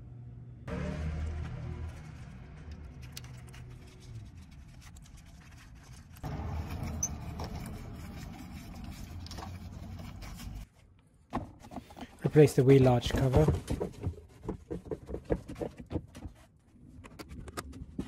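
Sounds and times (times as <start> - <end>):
gloved hands rustling and scraping: 1.8 - 11.0.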